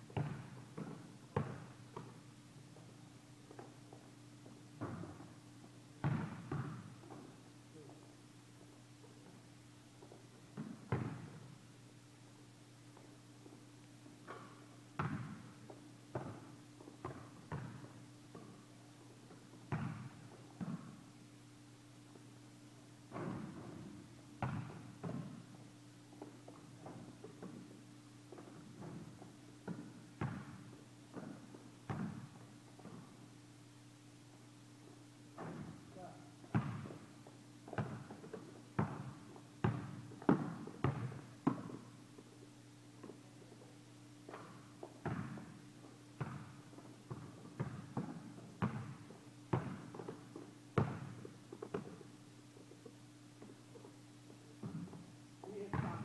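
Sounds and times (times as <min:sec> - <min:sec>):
basketball bouncing on gym floor: 0:00.0 - 0:08.0, 0:10.0 - 0:11.5, 0:14.2 - 0:18.6, 0:19.2 - 0:21.0, 0:23.1 - 0:25.6, 0:26.2 - 0:33.2, 0:35.4 - 0:42.0, 0:44.2 - 0:52.1, 0:54.6 - 0:56.0
faint steady hum: 0:00.0 - 0:56.0.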